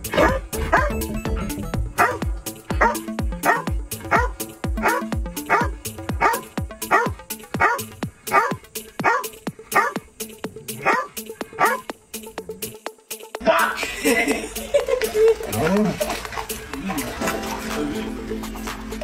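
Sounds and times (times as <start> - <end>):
dog barking rhythmically: 0.0 - 12.9
music with deep beat: 0.0 - 19.0.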